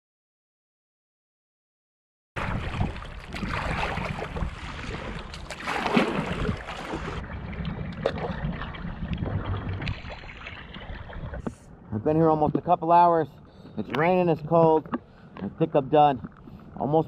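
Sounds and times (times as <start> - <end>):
wind buffeting microphone: 2.4 - 12.7
water splashing around kayak: 2.4 - 17.0.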